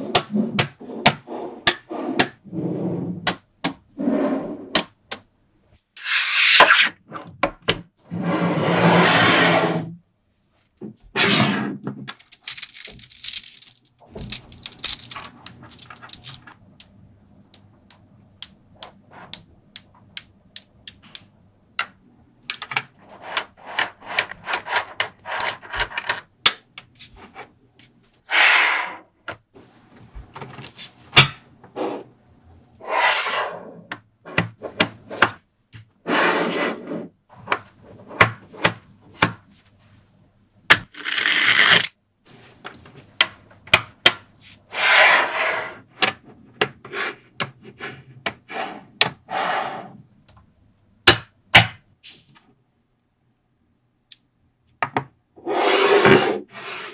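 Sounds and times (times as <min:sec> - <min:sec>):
metal balls rattling and rolling: 0:12.1 - 0:16.5.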